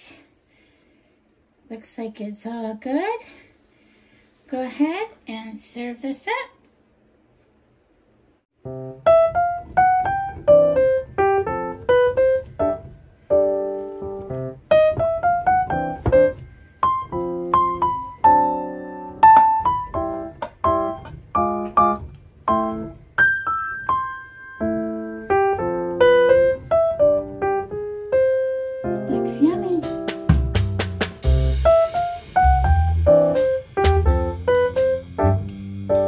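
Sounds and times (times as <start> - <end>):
bright piano melody: 8.6 - 36.0.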